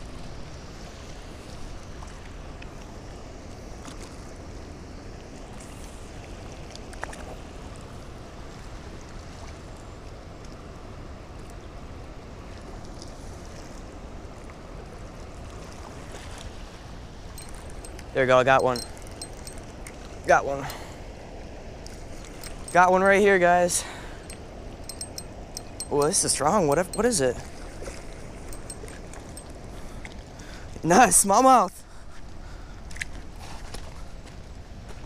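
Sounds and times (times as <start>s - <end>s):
faint clicks: 24.3s - 27.1s.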